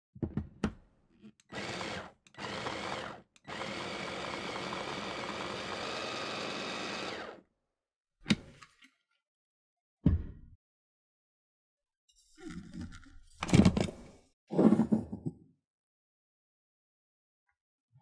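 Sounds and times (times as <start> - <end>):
food processor running: 1.5 - 7.5.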